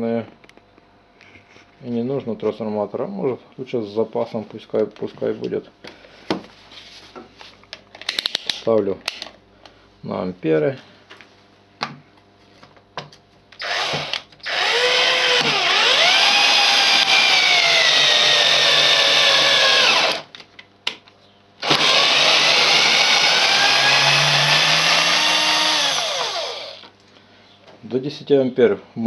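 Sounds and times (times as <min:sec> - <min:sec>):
drill driving screw into wood: 0:13.6 - 0:20.3, 0:21.6 - 0:26.9.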